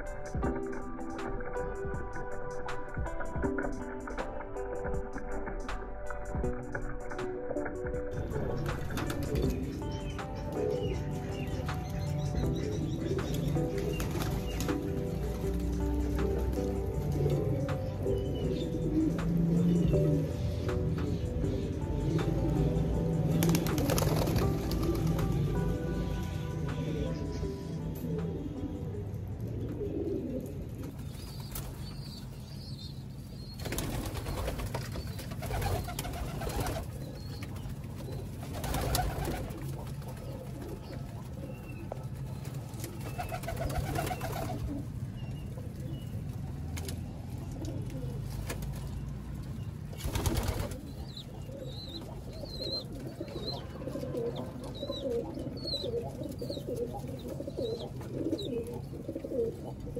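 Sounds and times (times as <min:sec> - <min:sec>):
pigeons cooing: 0:08.1 - 0:31.8, 0:33.5 - 0:49.1, 0:50.0 - 0:59.9
wings rustling and scuffling: 0:23.4 - 0:25.4, 0:33.6 - 0:44.7, 0:50.0 - 0:50.9.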